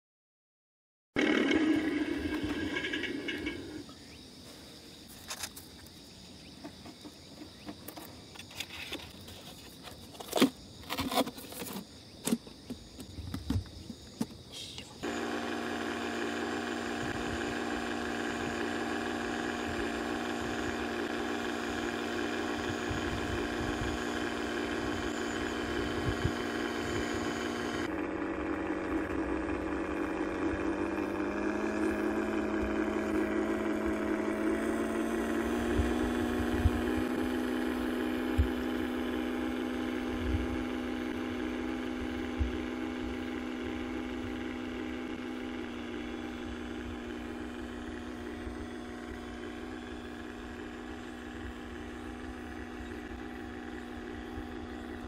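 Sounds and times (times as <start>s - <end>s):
model boat motor whining: 1.2s - 3.9s, 15.0s - 55.0s.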